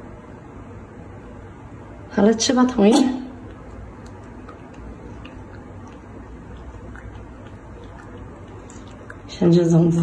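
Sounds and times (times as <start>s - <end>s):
steady low hum: 0.0s - 10.0s
monkey chewing clicks and smacks: 3.4s - 9.4s.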